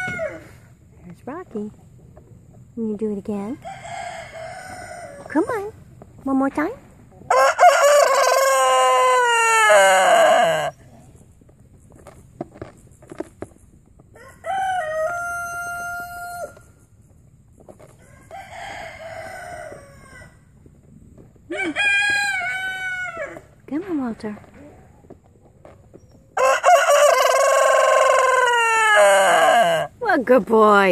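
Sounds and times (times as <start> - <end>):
rooster crowing: 0.0 - 0.5, 3.6 - 5.3, 7.3 - 10.7, 14.2 - 16.6, 18.1 - 20.4, 21.5 - 23.4, 26.4 - 29.9.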